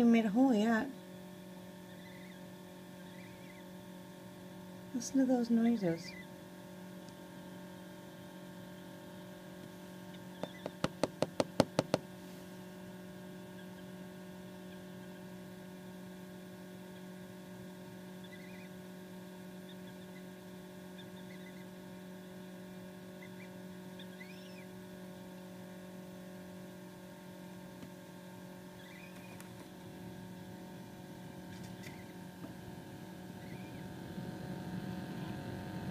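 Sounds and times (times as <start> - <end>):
incubator humming: 0.0 - 35.9
gosling peeping: 1.8 - 3.7, 10.1 - 10.9, 18.2 - 18.8, 20.9 - 21.7, 23.2 - 24.7, 28.7 - 29.5.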